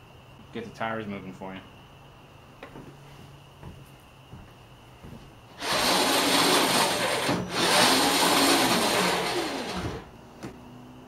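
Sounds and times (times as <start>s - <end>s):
electric motors grinding whine: 5.5s - 10.2s.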